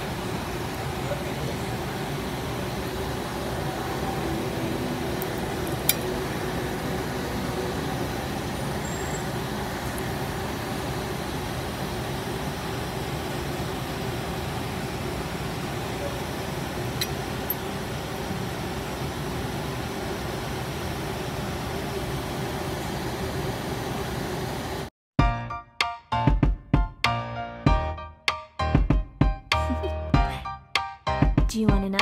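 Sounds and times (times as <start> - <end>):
background rumble and hiss: 0.0 - 24.3.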